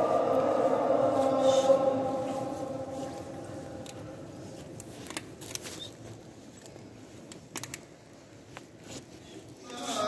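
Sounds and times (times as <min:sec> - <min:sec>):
person chanting a held note: 0:00.0 - 0:04.6.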